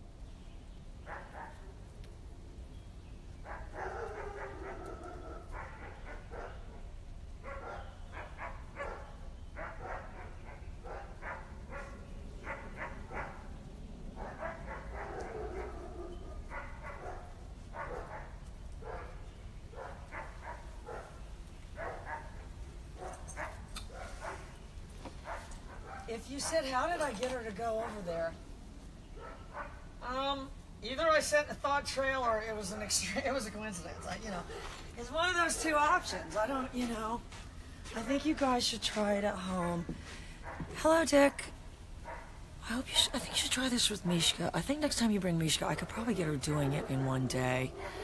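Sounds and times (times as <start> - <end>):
dog barking: 1.1 - 1.7, 3.4 - 6.8, 7.4 - 13.5, 14.2 - 21.2, 21.8 - 22.4, 23.0 - 24.6, 25.2 - 26.8, 29.1 - 29.9, 40.4 - 42.4, 46.7 - 48.0.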